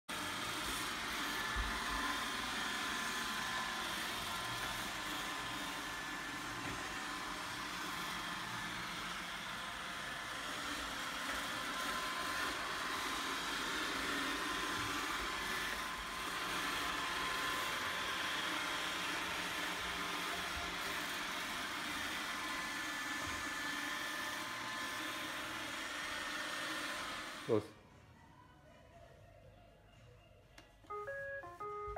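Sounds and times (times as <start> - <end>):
vacuum motor whirring: 0.1 - 27.7.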